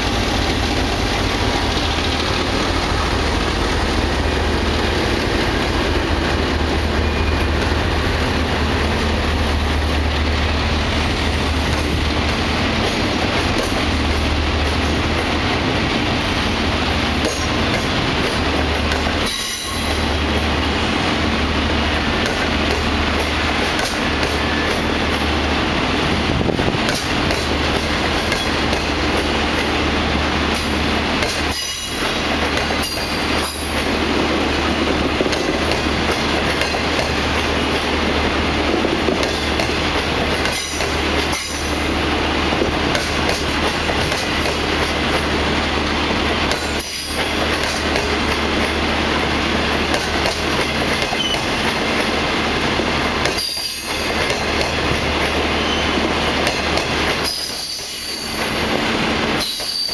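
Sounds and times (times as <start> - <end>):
train wheels rumbling on rails: 0.0 - 59.9
high wheel squeals: 55.6 - 56.0, 59.4 - 59.9.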